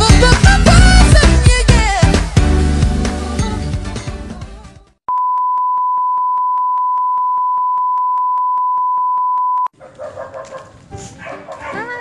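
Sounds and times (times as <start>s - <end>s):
single-pitch test tone: 5.1s - 9.7s.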